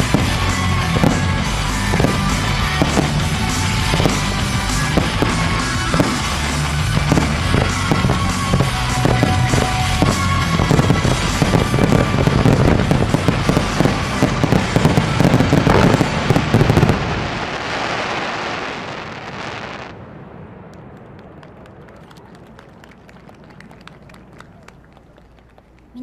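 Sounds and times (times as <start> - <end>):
rock music: 0.0 - 16.7
fireworks bursting and crackling: 0.0 - 26.0.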